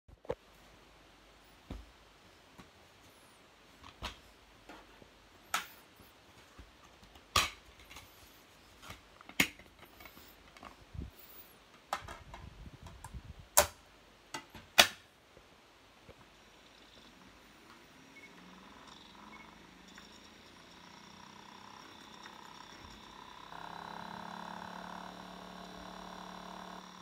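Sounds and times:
plastic case clicks and snaps: 14.4s - 15.0s.

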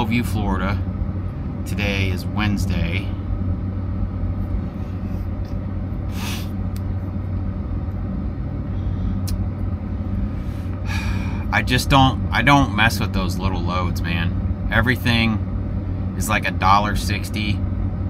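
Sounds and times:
diesel engine idling: 0.0s - 18.0s.

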